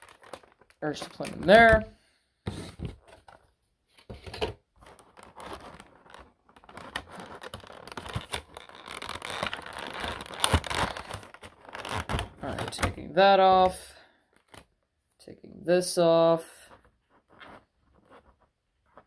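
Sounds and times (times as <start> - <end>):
plastic packaging crinkling: 0.0 - 1.9, 4.8 - 13.0.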